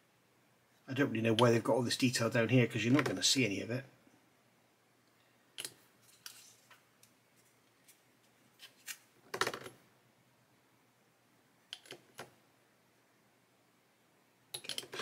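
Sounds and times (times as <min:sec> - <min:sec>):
plastic parts clicking and clinking: 0:14.6 - 0:15.0.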